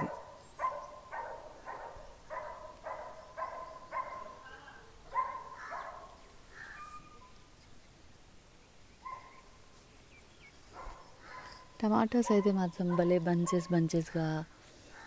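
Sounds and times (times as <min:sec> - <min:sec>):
dog barking: 0:00.0 - 0:06.2, 0:09.0 - 0:09.4, 0:10.7 - 0:13.8.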